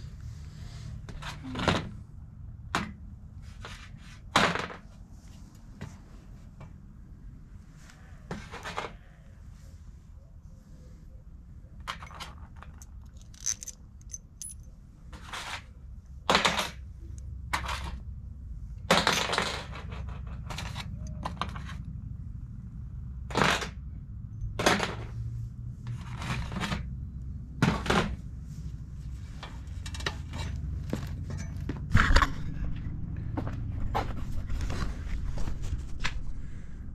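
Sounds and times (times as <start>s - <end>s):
metal hardware clinking: 11.8s - 14.7s
steady low rumble: 15.8s - 18.9s, 19.7s - 36.9s.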